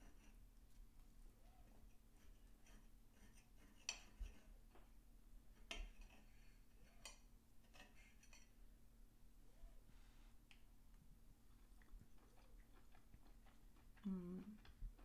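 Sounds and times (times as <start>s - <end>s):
knife and fork clinking on plate: 5.6s - 8.6s.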